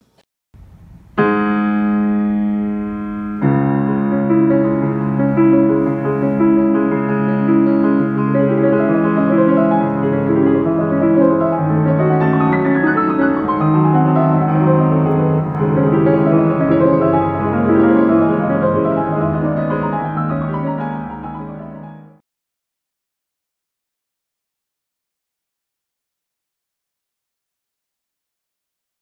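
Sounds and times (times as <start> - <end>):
grand piano playing: 0.6 - 22.2.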